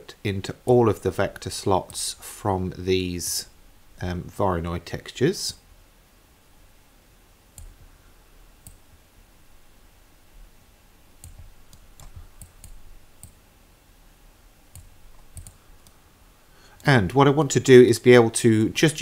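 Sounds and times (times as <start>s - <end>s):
computer mouse clicking: 7.6s - 7.8s, 8.6s - 8.8s, 11.2s - 13.4s, 14.7s - 16.0s.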